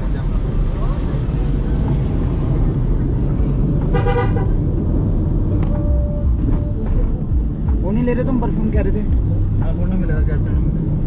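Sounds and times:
car driving rumble: 0:00.0 - 0:11.0
vehicle horn toot: 0:03.9 - 0:04.6.

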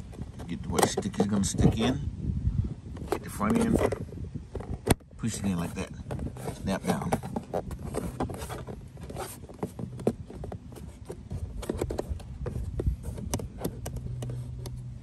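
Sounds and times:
plastic clicks knocks and scrapes: 0:00.0 - 0:01.8, 0:06.0 - 0:14.9.

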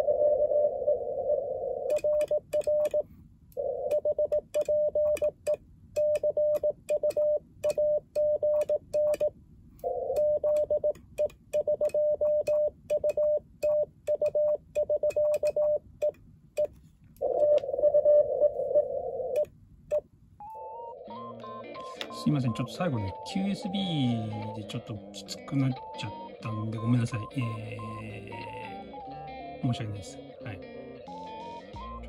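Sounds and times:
morse code tone: 0:01.9 - 0:03.0, 0:03.6 - 0:19.5, 0:20.4 - 0:29.8.

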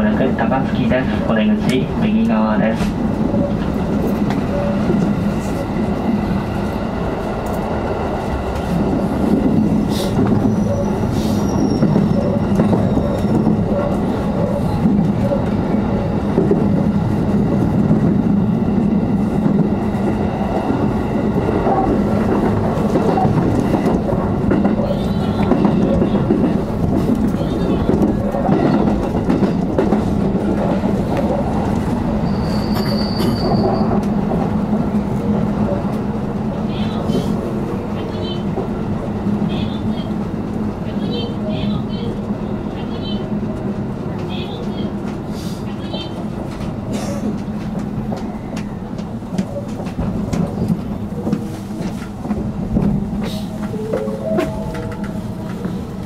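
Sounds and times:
train wheels rumbling on rails: 0:00.0 - 0:56.0
high wheel squeal: 0:10.4 - 0:13.4, 0:32.2 - 0:34.0.

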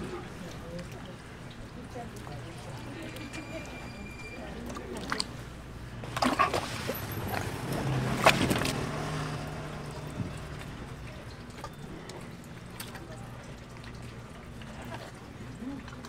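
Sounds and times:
wet sloshing: 0:04.3 - 0:16.0.

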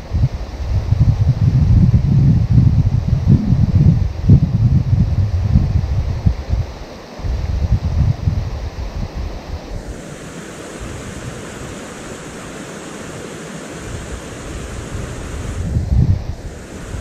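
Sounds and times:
wind buffeting microphone: 0:00.0 - 0:17.0
river rapids rushing: 0:09.4 - 0:17.0.

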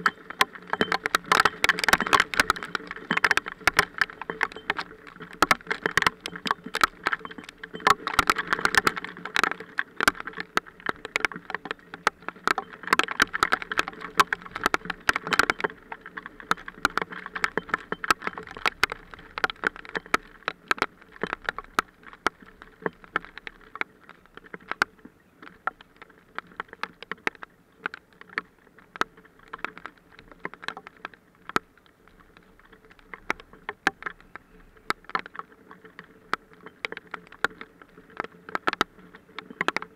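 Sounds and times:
hailstones striking: 0:00.0 - 0:24.8.

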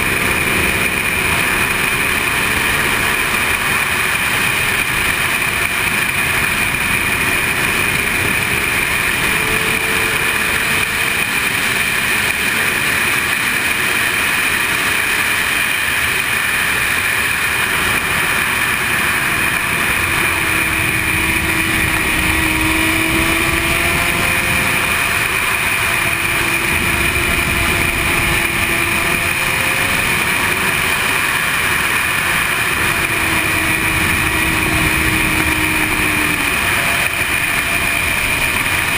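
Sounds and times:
motorcycle engine: 0:00.0 - 0:38.9.

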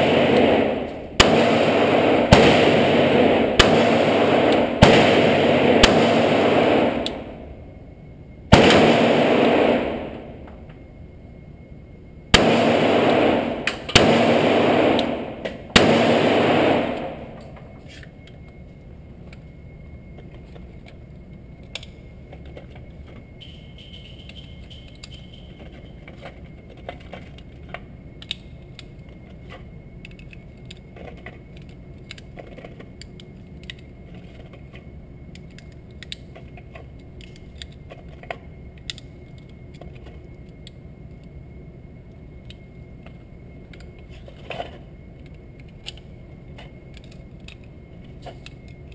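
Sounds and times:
cartridges clicking and rattling: 0:00.0 - 0:07.5, 0:12.4 - 0:18.5, 0:21.6 - 0:34.5, 0:35.3 - 0:41.3, 0:42.4 - 0:48.9
pistol shots echoing: 0:00.0 - 0:07.5, 0:08.5 - 0:10.5, 0:12.3 - 0:17.5
steady background hum: 0:00.0 - 0:48.9.

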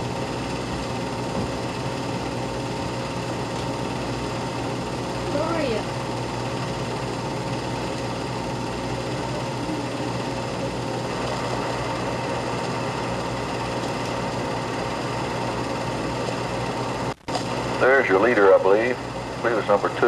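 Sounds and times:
constant hum: 0:00.0 - 0:20.0
film projector whirring: 0:00.0 - 0:20.0.

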